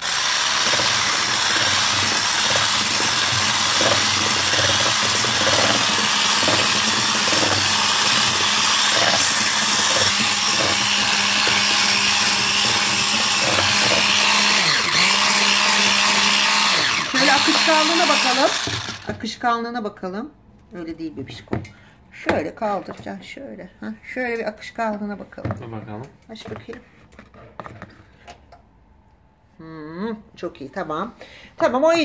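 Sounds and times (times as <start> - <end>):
electric hand mixer whisking batter: 0.0 - 19.2.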